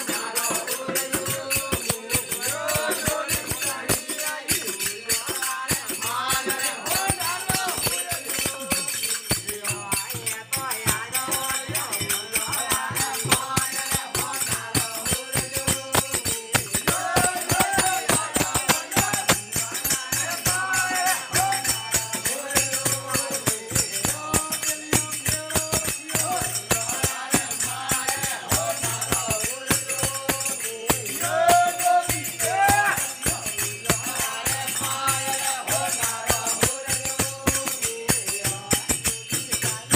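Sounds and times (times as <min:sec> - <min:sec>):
jingling percussion: 0:00.0 - 0:39.9
man singing: 0:00.0 - 0:39.9.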